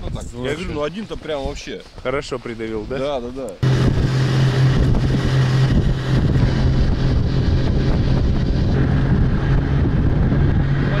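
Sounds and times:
wind noise on microphone: 0.0 - 2.0, 3.6 - 11.0
snowmobile engine running: 3.6 - 11.0.

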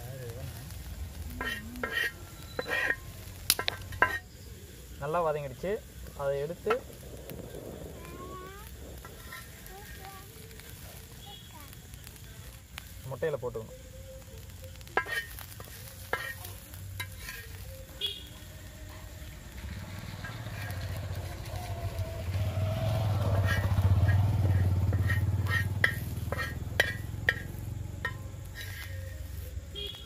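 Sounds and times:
light sizzle of frying: 0.0 - 30.0
steel spoon scraping iron pan: 1.4 - 4.3, 15.0 - 17.6, 23.3 - 29.4
low rumble: 5.9 - 10.6.

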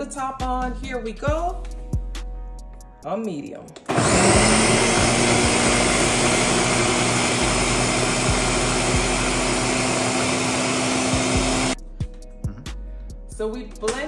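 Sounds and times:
blender whirring: 3.9 - 11.8.

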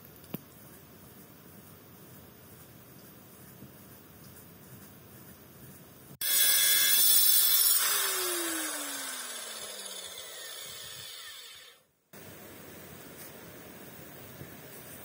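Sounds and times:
power tool motor winding down: 6.2 - 11.8.

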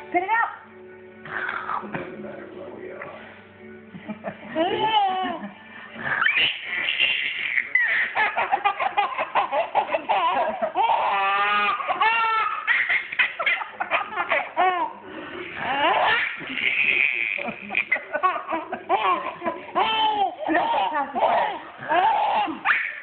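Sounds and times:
baby laughing: 4.6 - 23.0.

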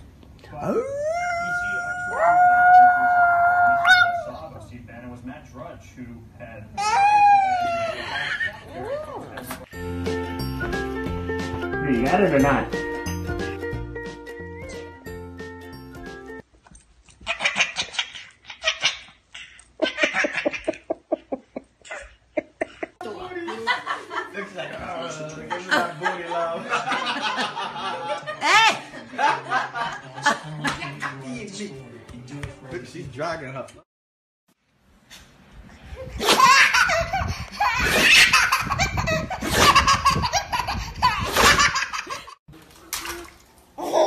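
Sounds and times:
baby laughing: 17.2 - 22.9, 36.1 - 42.3.

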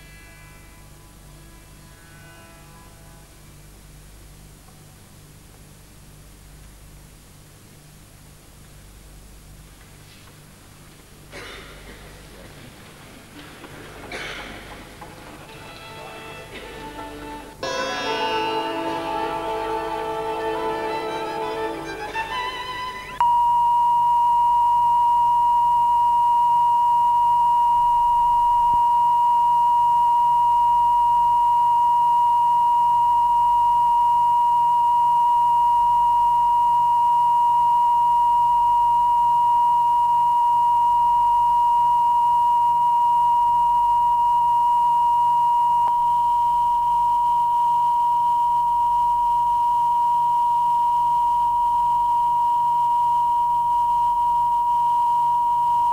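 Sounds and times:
steady test tone: 17.5 - 55.9.

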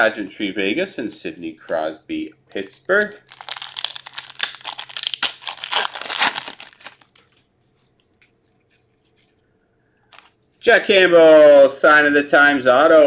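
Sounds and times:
foil wrapper crinkling and tearing: 3.0 - 7.4.

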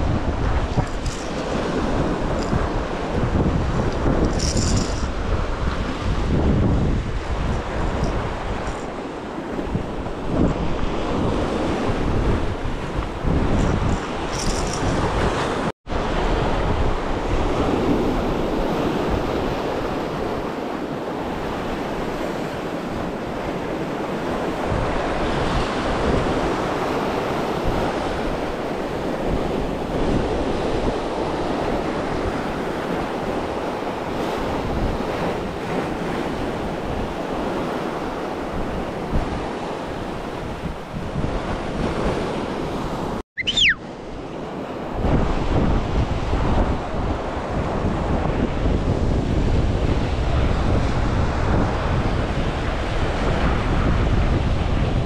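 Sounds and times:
waves washing on shore: 0.0 - 55.0
wind on microphone: 0.0 - 55.0
high sliding tone: 43.4 - 43.9.

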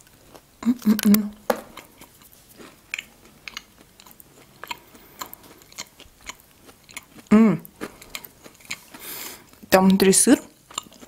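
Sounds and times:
person chewing: 0.0 - 9.7, 10.5 - 11.0.

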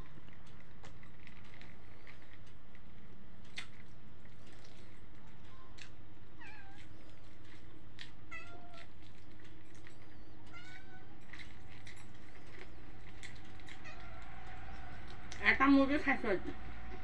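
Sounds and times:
person chewing with sharp clicks: 0.0 - 10.5
cat meowing: 6.4 - 7.0, 8.3 - 9.0, 10.4 - 11.2, 13.7 - 15.1.

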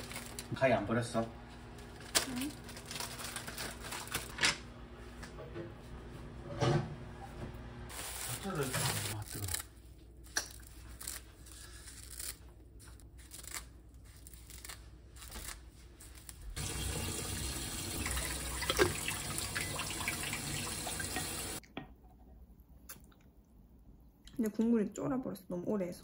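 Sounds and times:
seaweed crackling: 0.0 - 0.6, 13.2 - 16.6.

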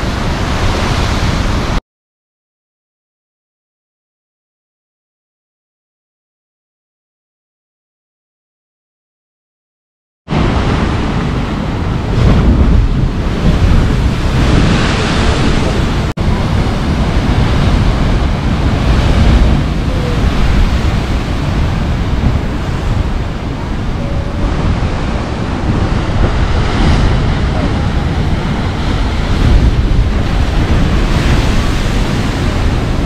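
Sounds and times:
wind buffeting microphone: 10.3 - 33.0.

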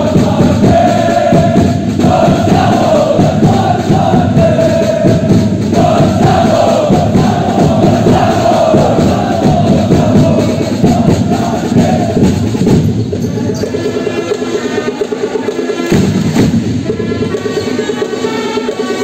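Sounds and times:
crowd chanting: 0.0 - 12.9
drums beating fast: 0.0 - 19.0.

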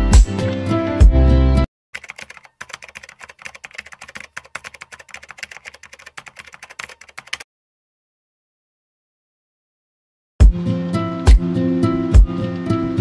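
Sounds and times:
music: 0.0 - 1.7, 10.4 - 13.0
keyboard typing clicks: 2.0 - 7.4.

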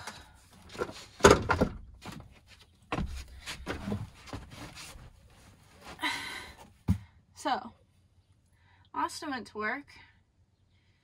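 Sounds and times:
person crawling on wooden floor: 2.0 - 7.1.

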